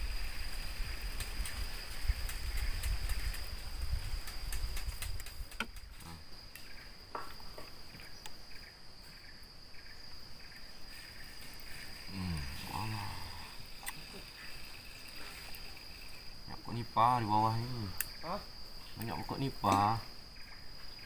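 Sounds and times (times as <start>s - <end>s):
insects chirring: 0.0s - 21.0s
faint clicks: 1.1s - 6.8s, 13.7s - 16.2s
faint pulsing chirps: 7.8s - 21.0s.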